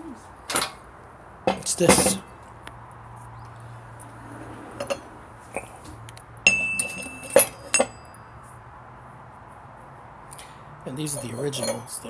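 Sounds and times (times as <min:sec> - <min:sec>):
metal spacers clinking: 0:06.5 - 0:08.2, 0:10.9 - 0:12.0.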